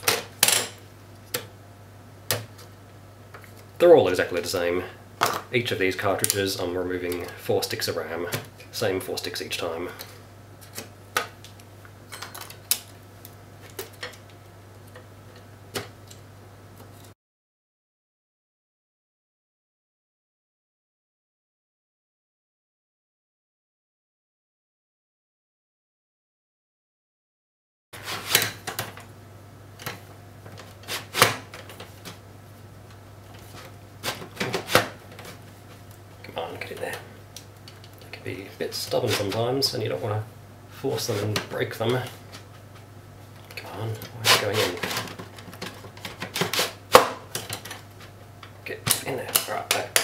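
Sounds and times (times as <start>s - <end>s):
low steady hum: 0.0s - 17.1s, 28.0s - 50.0s.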